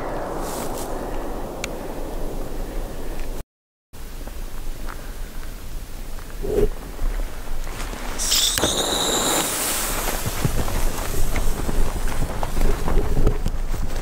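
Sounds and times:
firework hissing and whistling: 8.2 - 11.7.

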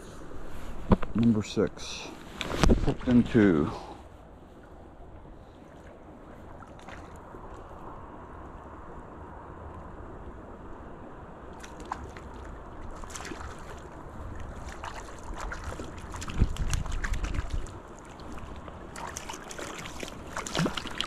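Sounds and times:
wind on microphone: 2.4 - 3.4, 12.9 - 19.0
creek water flowing: 3.1 - 8.9, 11.3 - 21.0
fish splashing at surface: 11.6 - 21.0.

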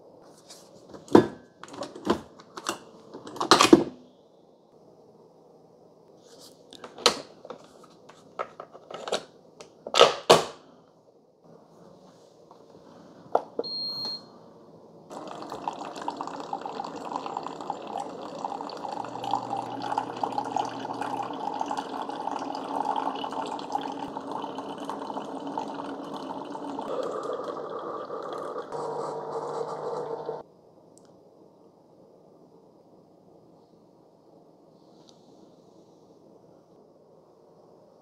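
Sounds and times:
short high beep: 13.6 - 14.3
coffee splashing into mugs: 15.1 - 28.8
coffee makers pumping and hissing: 15.1 - 30.4.

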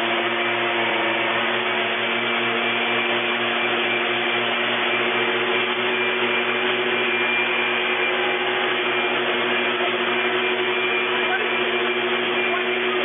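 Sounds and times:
mechanical drone with hum: 0.0 - 13.0.

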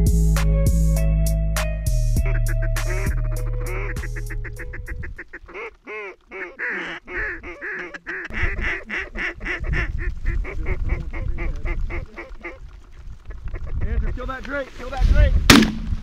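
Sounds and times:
mallard quacking: 2.2 - 12.6.

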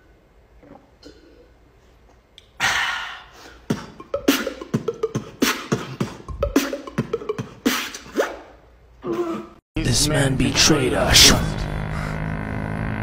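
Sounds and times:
man beatboxing: 3.6 - 8.4.

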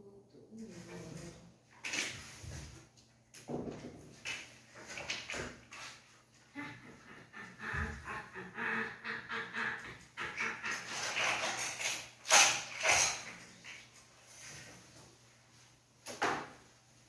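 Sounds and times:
plastic toy blocks clattering: 10.8 - 13.4.

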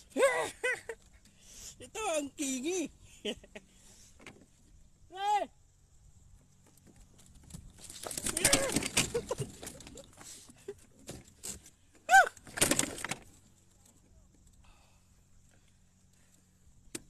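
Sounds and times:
fish thrashing on kayak: 7.6 - 11.6.

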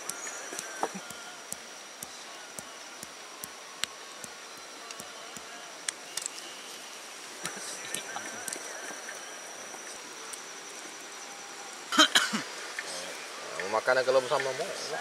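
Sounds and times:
sharp clicks: 0.0 - 6.4
forest ambience: 0.0 - 15.0
high-pitched insect trill: 0.0 - 15.0.

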